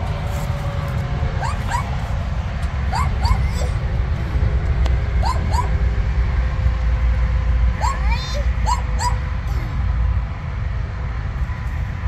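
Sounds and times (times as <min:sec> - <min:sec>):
steady low rumble: 0:00.0 - 0:12.0
dog yipping: 0:01.4 - 0:02.0, 0:02.9 - 0:03.8, 0:05.2 - 0:05.8, 0:07.8 - 0:09.2.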